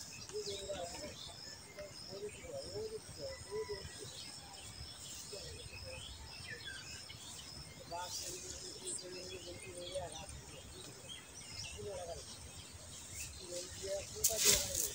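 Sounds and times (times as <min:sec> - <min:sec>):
birds chirping: 0:00.0 - 0:14.9
high thin insect-like tone: 0:13.0 - 0:14.9.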